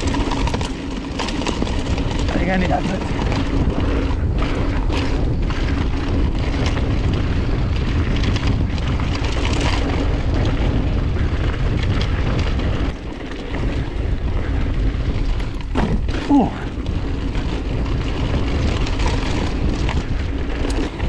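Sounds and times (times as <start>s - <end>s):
bike rattling over rough ground: 0.0s - 21.0s
tyre roar on dirt trail: 0.0s - 21.0s
wind buffeting microphone: 0.0s - 21.0s.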